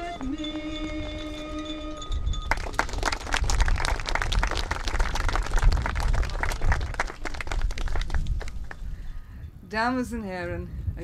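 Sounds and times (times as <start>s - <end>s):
audience applause: 2.5s - 8.8s.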